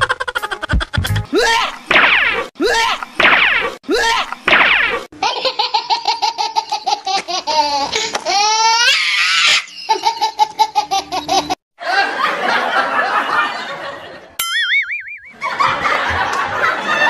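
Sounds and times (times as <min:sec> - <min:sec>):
comedy laughter sound effects: 0:00.0 - 0:01.8, 0:05.2 - 0:17.0
warbling cartoon tone: 0:14.4 - 0:15.4.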